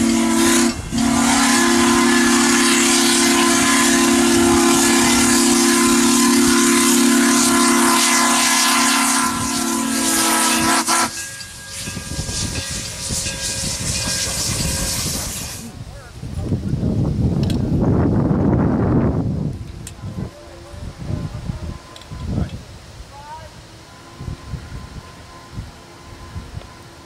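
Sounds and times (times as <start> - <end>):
steam locomotive whistle: 0.0 - 15.6, 19.9 - 22.5, 23.1 - 27.0
train cars rolling past: 0.0 - 15.9, 16.8 - 27.0
locomotive steam hiss: 0.0 - 16.1.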